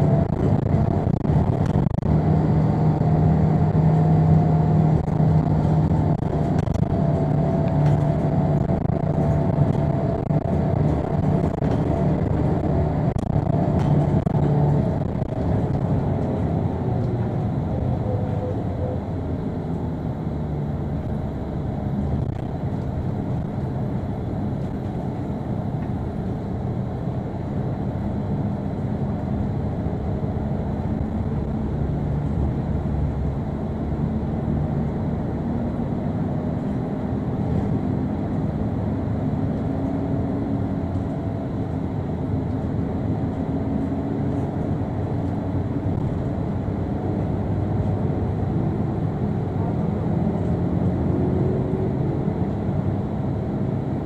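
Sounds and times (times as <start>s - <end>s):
bus engine drone: 0.0s - 54.0s
road rumble: 0.0s - 54.0s.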